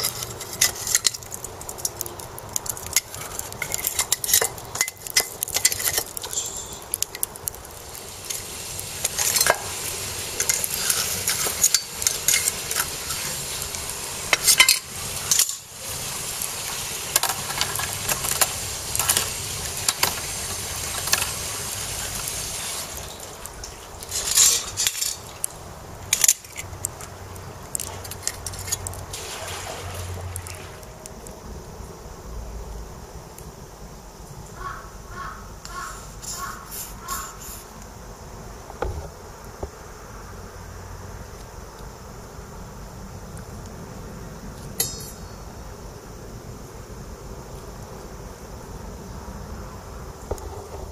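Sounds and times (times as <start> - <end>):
metal tongs clinking and scraping: 0.0 - 2.0, 2.6 - 7.3, 10.4 - 13.4, 14.3 - 15.6, 24.0 - 25.3, 27.7 - 29.0
charcoal fire hissing: 0.0 - 50.9.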